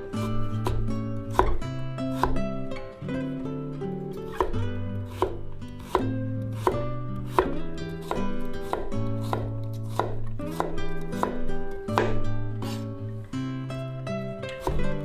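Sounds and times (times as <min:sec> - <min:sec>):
guitar music: 0:00.0 - 0:15.0
knife chopping on wooden board: 0:00.2 - 0:02.6, 0:04.3 - 0:12.9, 0:14.6 - 0:15.0.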